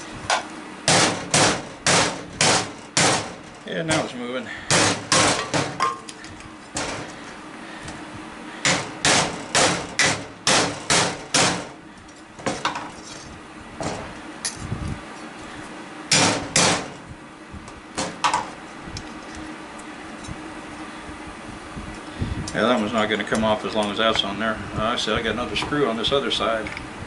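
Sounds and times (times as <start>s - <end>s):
hammer striking metal: 8.6s - 11.7s, 16.1s - 16.9s.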